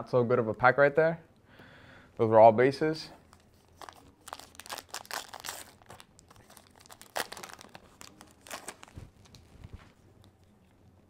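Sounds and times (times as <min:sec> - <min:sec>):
card pack wrapper crinkling: 0:03.3 - 0:09.9.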